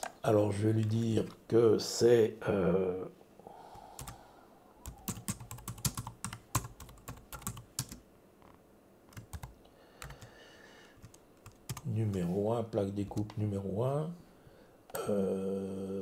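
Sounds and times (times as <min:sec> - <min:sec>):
computer keyboard typing: 0:04.0 - 0:04.2, 0:04.8 - 0:08.0, 0:09.1 - 0:10.3, 0:11.0 - 0:11.9.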